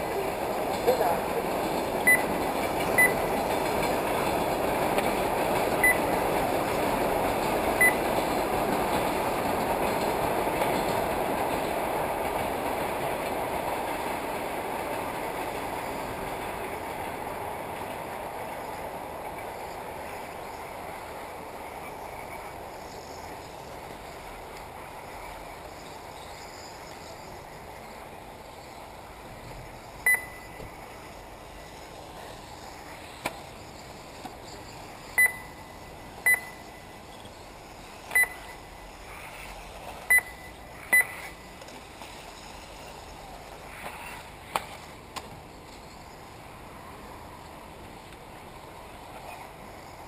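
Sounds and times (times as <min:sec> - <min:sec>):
steady background hiss: 0:00.0 - 0:50.0
short electronic beeps: 0:02.1 - 0:02.3, 0:03.0 - 0:03.2, 0:05.8 - 0:06.0, 0:30.1 - 0:30.6, 0:35.2 - 0:36.8, 0:38.2 - 0:38.6, 0:40.1 - 0:41.3.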